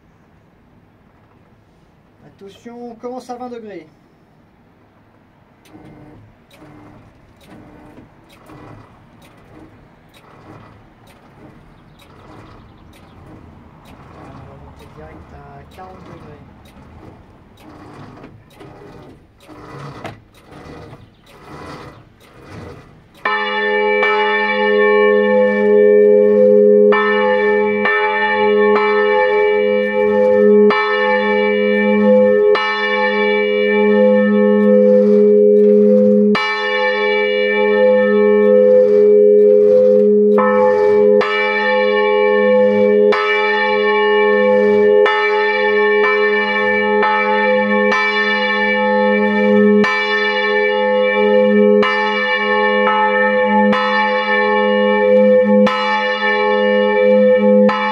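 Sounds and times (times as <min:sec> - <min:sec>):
church bell ringing: 0:23.2 - 0:57.9.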